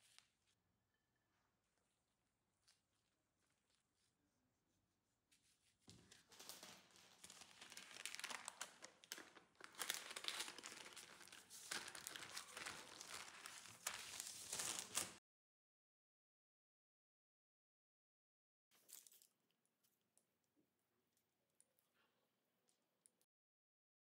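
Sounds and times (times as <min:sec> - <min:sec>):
baking paper crinkling: 0:05.9 - 0:15.2.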